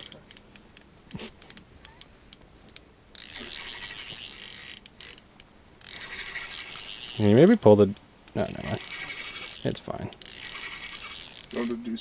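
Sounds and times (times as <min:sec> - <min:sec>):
fishing reel whirring: 0:03.2 - 0:05.2, 0:05.8 - 0:07.7, 0:08.4 - 0:11.8.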